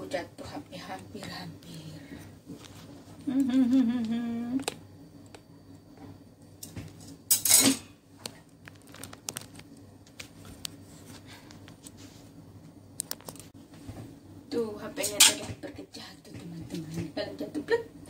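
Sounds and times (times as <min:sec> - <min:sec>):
woman's wordless vocal sound: 0:03.2 - 0:04.6.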